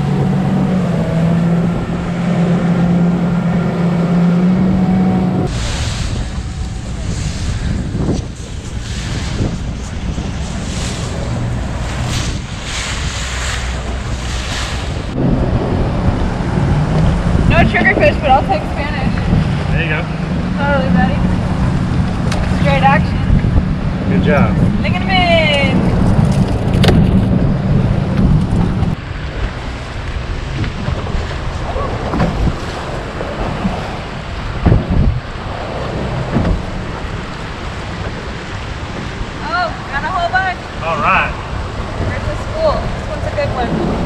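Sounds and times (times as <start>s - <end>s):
low engine hum: 0.0s - 44.0s
water rushing past boat hull: 0.0s - 44.0s
wind buffeting microphone: 0.0s - 44.0s
water lapping: 29.1s - 44.0s.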